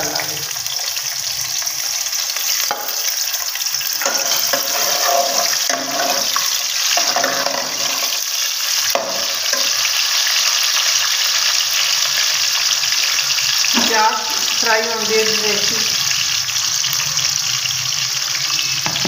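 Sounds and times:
onions sizzling in hot oil: 0.0 - 19.0
metal ladle stirring: 3.9 - 8.2.

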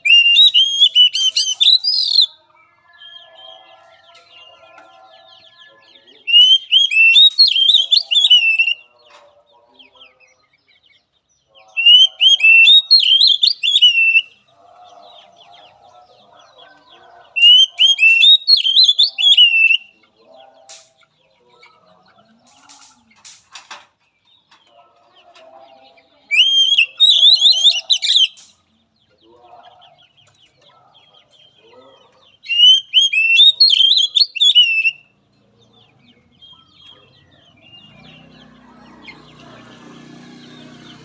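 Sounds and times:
bird singing whistled phrases: 0.0 - 2.4, 6.2 - 8.9, 11.8 - 14.4, 17.4 - 20.0, 26.3 - 28.4, 32.4 - 35.1.

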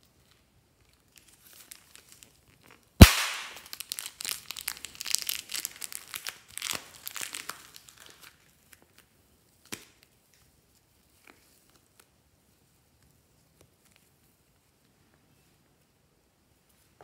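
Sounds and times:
plastic crinkling: 0.2 - 10.1
sharp pop: 3.0 - 3.7.

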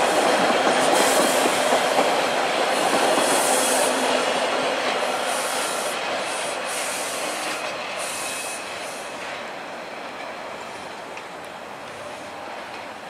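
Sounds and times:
subway train rumbling past: 0.0 - 13.0
high hiss: 5.0 - 9.3.

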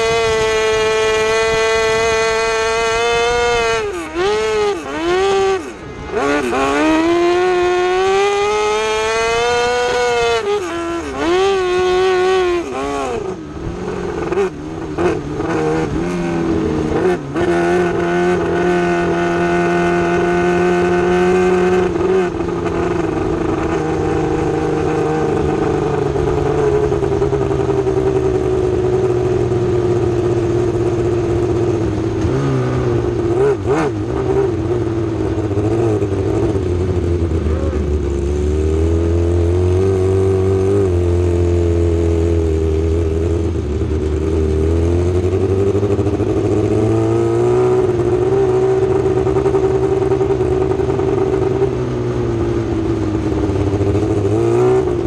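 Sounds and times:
race car engine revving: 0.0 - 55.0.

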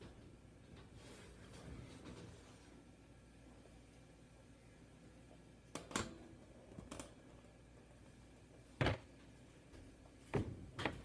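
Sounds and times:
kitchen knocks and thumps: 8.8 - 9.2, 10.2 - 11.0.

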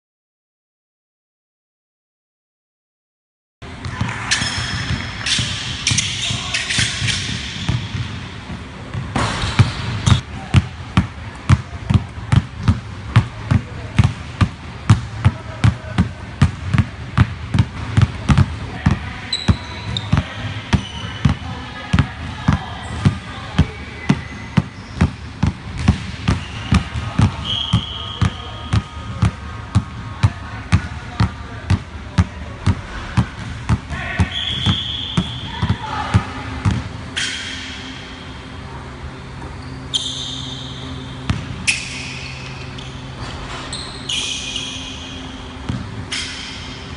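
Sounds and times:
sneakers squeaking on wood floor: 3.8 - 10.2, 17.6 - 29.4, 33.2 - 36.0, 39.5 - 46.4
basketballs bouncing on hardwood: 6.9 - 36.9.

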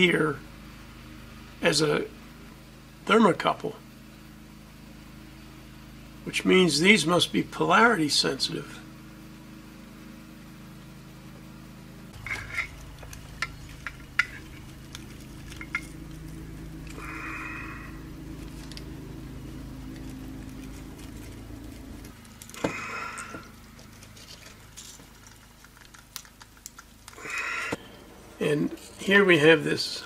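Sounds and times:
low hum: 0.1 - 30.0
light metal clicks and clinks: 12.2 - 16.0.

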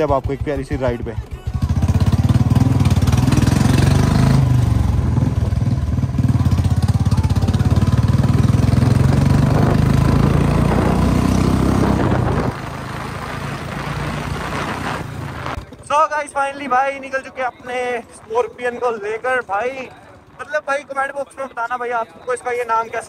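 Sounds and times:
motorcycle engine running: 0.0 - 16.1.

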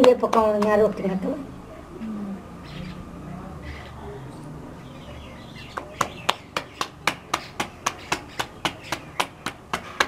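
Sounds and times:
hands slapping dough: 5.8 - 10.0.

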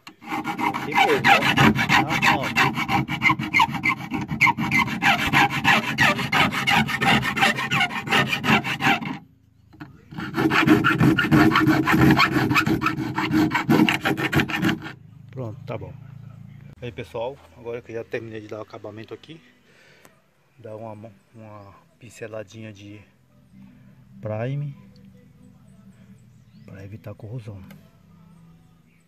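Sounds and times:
hand file rasping on sheet metal: 0.0 - 9.2, 10.1 - 15.0.

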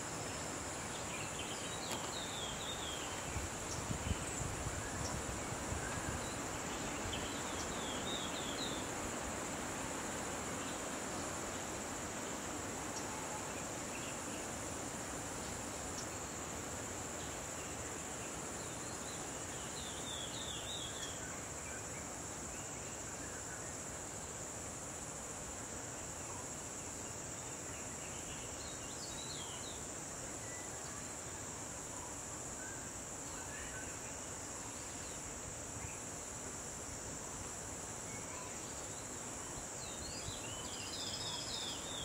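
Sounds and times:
background hiss: 0.0 - 42.0
high-pitched insect chorus: 0.0 - 42.0.

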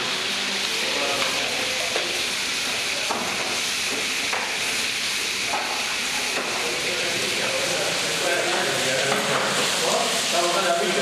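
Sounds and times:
water running onto steel tables: 0.0 - 11.0.

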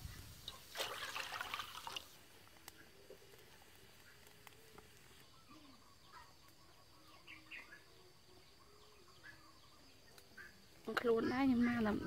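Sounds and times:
faint bird chirps: 2.5 - 12.0.

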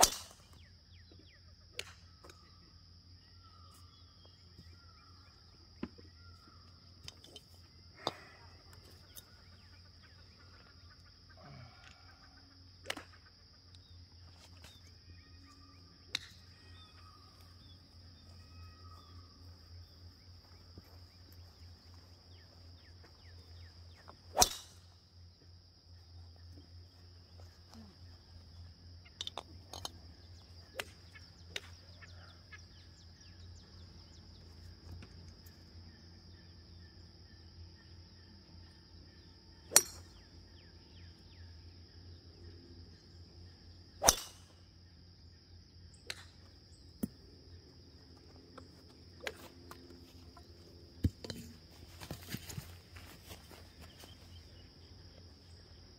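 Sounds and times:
insects droning: 0.0 - 55.9
golf clubs striking balls: 24.3 - 24.9, 29.1 - 31.8, 44.0 - 44.5.

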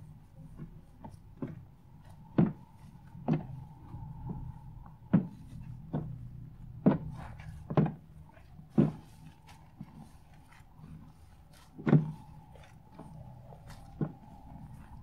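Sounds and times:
foam slime squishing: 0.0 - 15.0.

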